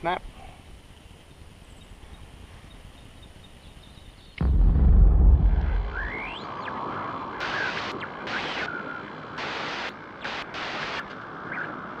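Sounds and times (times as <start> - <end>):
steady background noise: 0.0 - 12.0
static-like hiss bursts: 4.4 - 12.0
faint whistling glides: 5.5 - 9.4, 11.4 - 12.0.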